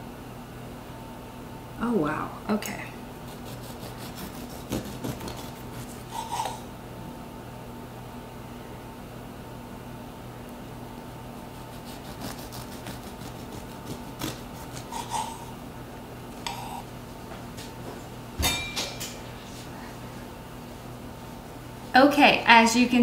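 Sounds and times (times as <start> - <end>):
steady low hum: 0.0 - 23.0
kitchenware clicking and knocking: 18.4 - 19.2
metal utensil clanking down: 18.4 - 19.2.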